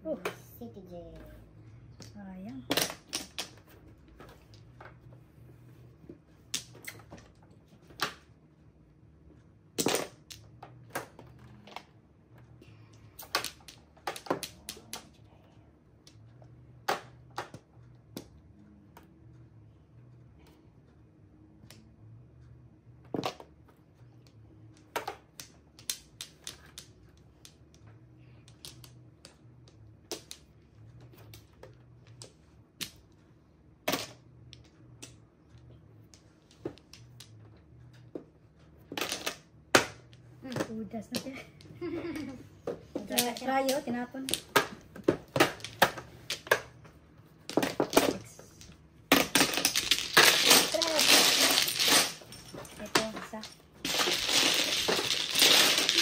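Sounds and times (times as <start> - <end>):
mahjong tiles clacking: 2.0 - 5.2, 12.8 - 15.2, 23.1 - 56.0.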